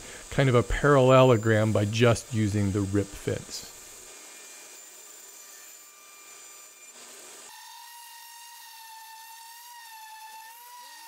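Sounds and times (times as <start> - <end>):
table saw cutting wood: 2.8 - 11.0.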